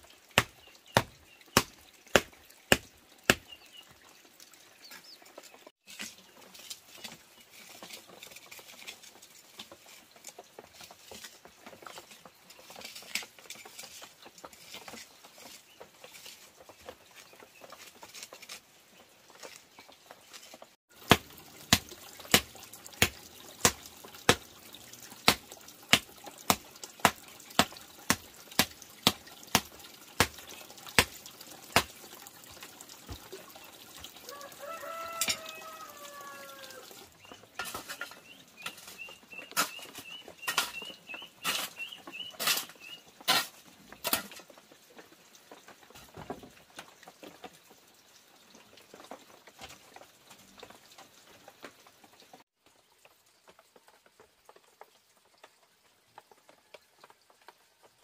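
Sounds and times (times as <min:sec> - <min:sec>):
hoe striking packed earth: 0:21.0 - 0:24.4, 0:25.3 - 0:30.4, 0:31.8 - 0:32.0
rooster crowing: 0:34.2 - 0:36.9
shovel scraping earth: 0:37.6 - 0:44.4.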